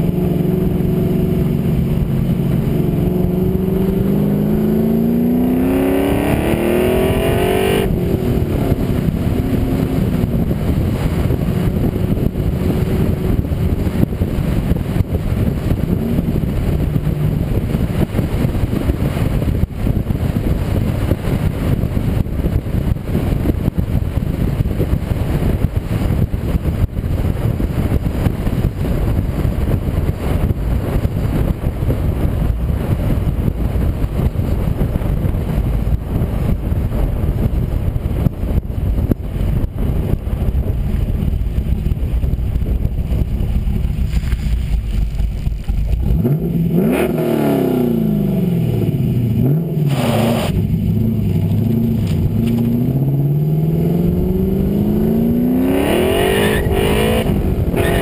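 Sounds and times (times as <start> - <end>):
car engine accelerating: 0.0 - 26.1, 39.0 - 58.0
wind rush on microphone: 0.0 - 58.0.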